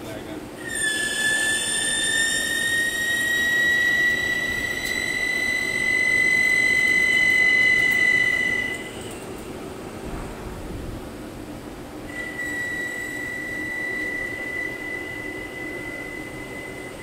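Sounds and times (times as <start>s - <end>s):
low machine running noise: 0.0s - 17.0s
lathe high-pitched cutting squeal: 0.6s - 9.2s, 12.1s - 17.0s.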